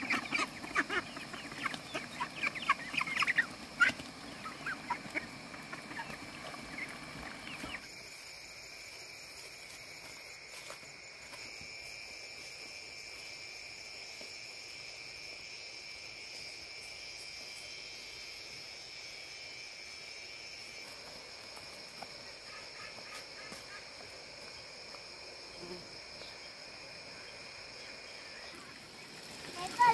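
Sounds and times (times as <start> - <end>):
chickens clucking and chirping: 0.0 - 7.9
high insect drone: 0.0 - 29.9.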